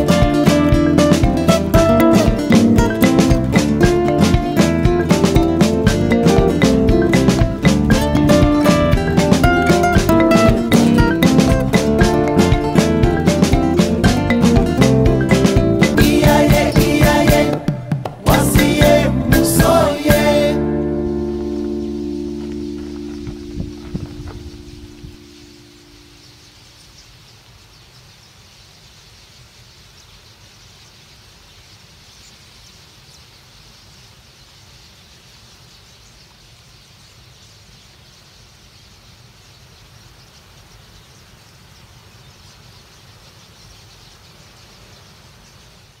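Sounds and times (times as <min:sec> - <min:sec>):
flock of birds chirping: 0:18.6 - 0:46.0.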